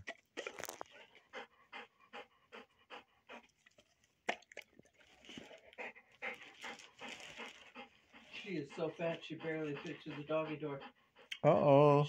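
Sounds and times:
dog panting: 0.6s - 4.0s, 5.2s - 11.4s.

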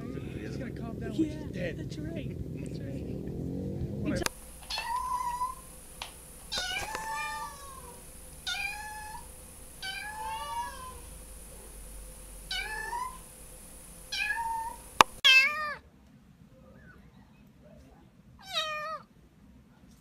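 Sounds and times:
kitten meowing: 0.0s - 5.7s, 6.4s - 11.1s, 12.5s - 13.3s, 14.1s - 15.8s, 18.4s - 19.0s.

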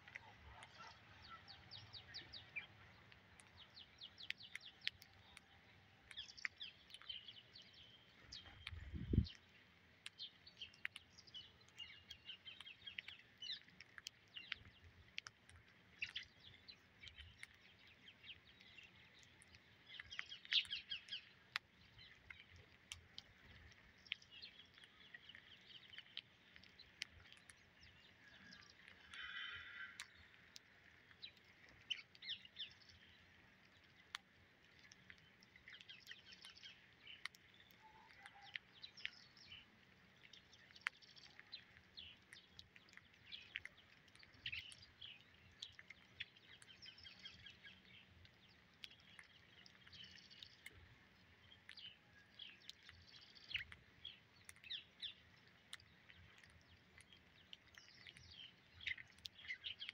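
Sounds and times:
beaks pecking on concrete: 0.0s - 59.9s
birds chirping: 0.2s - 14.9s, 34.8s - 59.9s.

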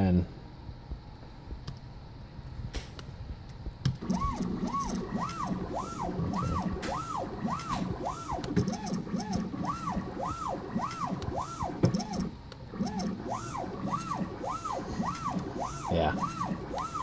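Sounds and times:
stepper motors whining: 4.0s - 17.0s.

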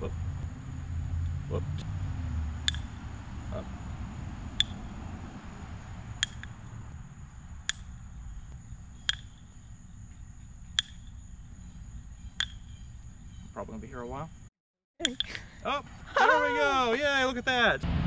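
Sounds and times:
high insect buzz: 0.0s - 14.5s
wooden ball clacking on cup: 9.0s - 9.4s.

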